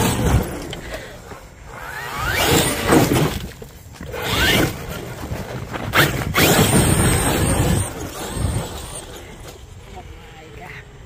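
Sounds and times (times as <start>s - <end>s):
tyres on dirt and gravel: 0.0s - 11.0s
electric motor whining: 1.6s - 9.8s.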